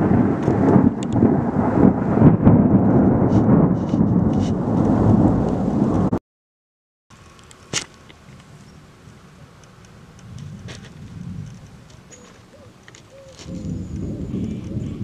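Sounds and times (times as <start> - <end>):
rain: 0.0 - 6.2, 7.1 - 15.0
rolling thunder: 0.0 - 6.2, 10.2 - 11.9, 13.5 - 15.0.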